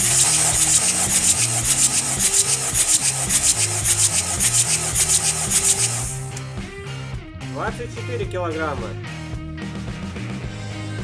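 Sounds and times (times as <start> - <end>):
engine cranking without firing: 0.0 - 6.5.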